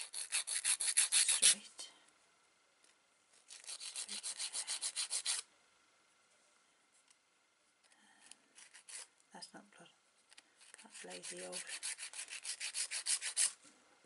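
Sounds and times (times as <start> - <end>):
nail file rasping on nails: 0.0 - 1.6, 3.5 - 5.5, 8.6 - 9.1, 10.6 - 13.6.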